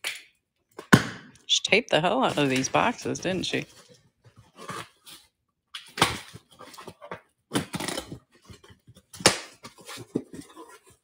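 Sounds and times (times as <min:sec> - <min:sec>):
packing tape being slit and torn: 0:07.5 - 0:08.2.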